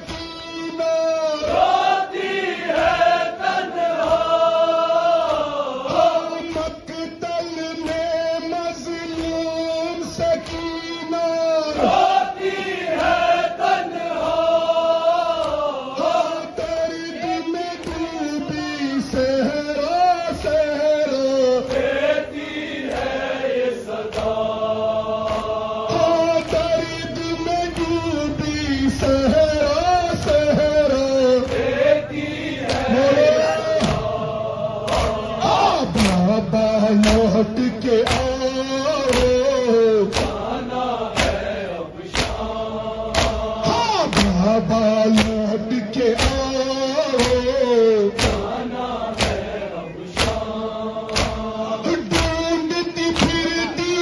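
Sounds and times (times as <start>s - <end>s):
men chanting a lament: 0.0s - 54.0s
rhythmic chest-beating strikes: 0.0s - 54.0s.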